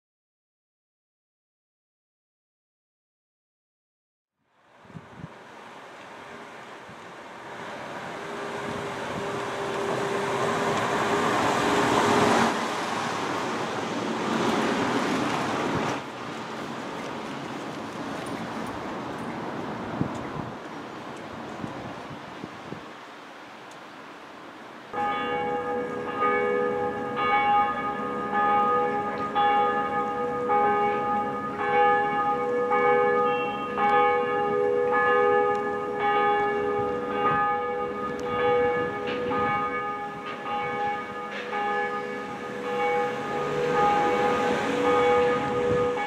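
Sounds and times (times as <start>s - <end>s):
church bells ringing: 8.0s - 13.0s, 24.9s - 46.0s.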